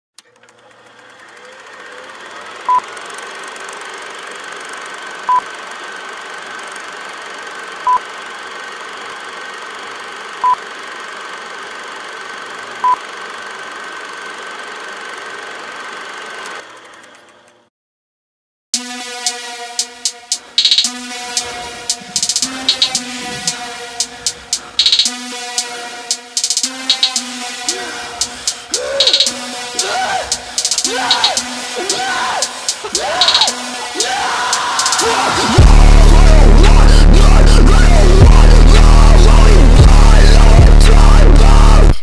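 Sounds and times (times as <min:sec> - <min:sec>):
noisy hum: 0:19.2 - 0:42.0
short electronic beeps: 0:20.0 - 0:20.9, 0:28.2 - 0:31.7.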